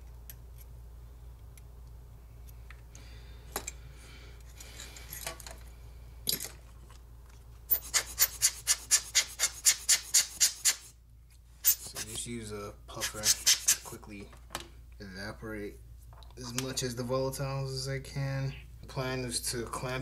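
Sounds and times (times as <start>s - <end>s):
hand air blower puffs: 7.7s - 10.9s, 13.0s - 13.9s.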